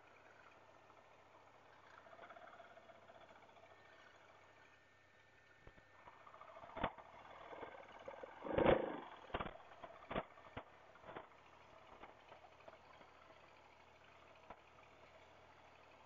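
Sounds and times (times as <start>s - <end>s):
motorcycle engine running low: 6.3s - 13.8s
short engine burst: 8.4s - 9.5s.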